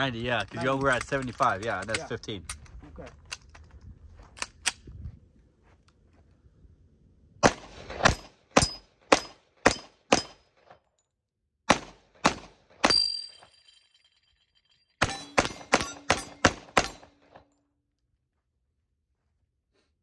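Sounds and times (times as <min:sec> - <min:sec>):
pistol shots: 0:07.4 - 0:10.5, 0:11.7 - 0:13.1, 0:15.0 - 0:17.4
metallic ring: 0:12.9 - 0:17.2.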